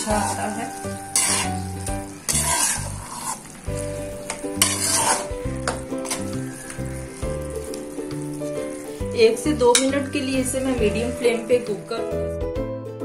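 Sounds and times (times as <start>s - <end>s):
metal spoon scraping pan: 0.0s - 11.8s
sizzling in ghee: 0.0s - 12.4s
background music: 0.0s - 13.0s.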